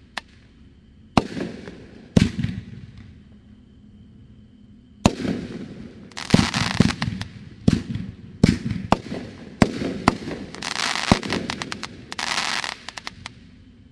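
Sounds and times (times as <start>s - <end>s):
fireworks crackling: 5.1s - 13.3s.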